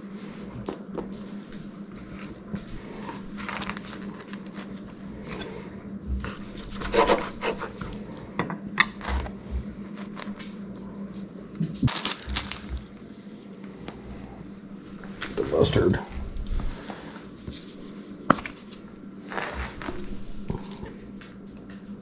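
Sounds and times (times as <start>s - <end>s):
low steady hum: 0.0s - 22.0s
knife scraping on cutting board: 6.2s - 7.9s.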